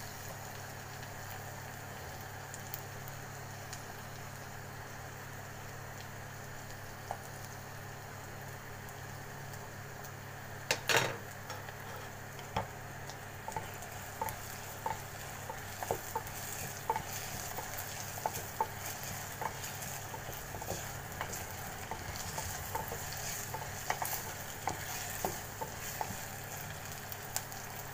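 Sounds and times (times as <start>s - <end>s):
onions sizzling in oil: 0.0s - 27.9s
wooden spoon scraping a pot: 13.5s - 26.3s.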